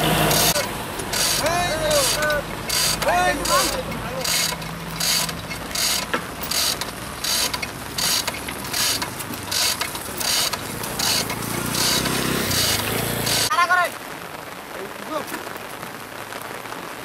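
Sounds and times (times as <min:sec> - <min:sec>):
hoist chain rattling: 0:00.3 - 0:13.5
ratchet clicking: 0:00.3 - 0:13.5.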